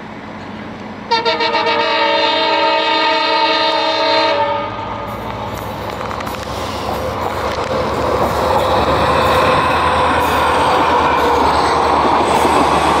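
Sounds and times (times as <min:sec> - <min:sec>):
locomotive horn blast: 0:01.1 - 0:05.1
locomotive engine running: 0:04.7 - 0:13.0
train wheels running: 0:04.7 - 0:13.0.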